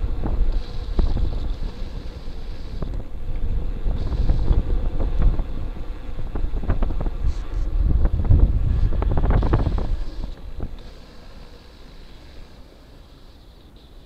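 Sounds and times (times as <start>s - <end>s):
bike and mount rattling: 0.0s - 12.6s
wind buffeting microphone: 0.0s - 13.0s.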